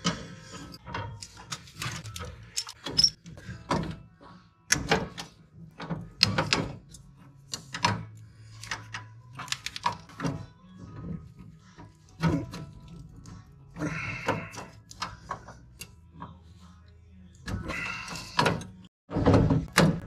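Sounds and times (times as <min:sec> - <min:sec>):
pliers and spring clicking on metal: 0:00.0 - 0:04.0, 0:14.5 - 0:16.4.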